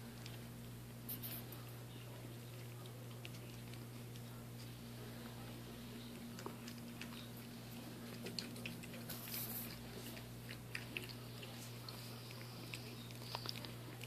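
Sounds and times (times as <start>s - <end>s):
steady low hum: 0.0s - 14.0s
puppy paws clicking on tile: 2.5s - 14.0s.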